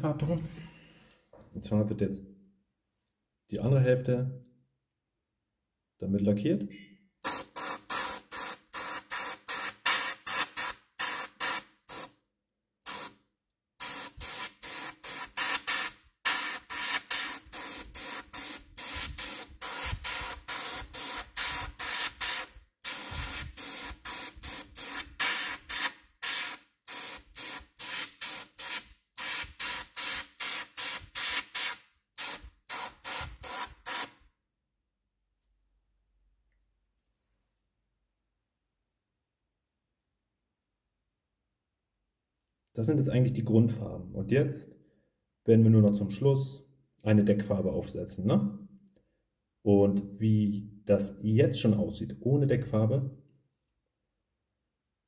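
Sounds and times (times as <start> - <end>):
airbrush spraying in hissing pulses: 7.2 - 12.1, 12.9 - 13.2, 13.8 - 34.2.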